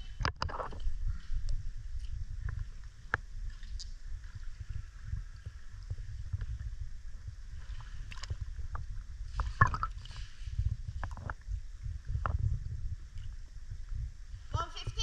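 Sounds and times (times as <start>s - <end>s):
water lapping and sloshing: 0.0s - 14.5s
small water splashes: 9.3s - 10.4s.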